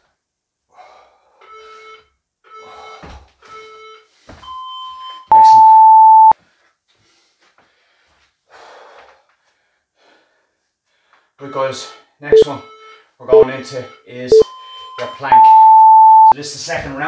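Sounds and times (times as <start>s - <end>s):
long loud timer beep: 3.6s - 6.3s, 12.3s - 13.7s, 14.3s - 16.3s
timer beeps: 3.6s - 6.3s, 12.3s - 16.3s.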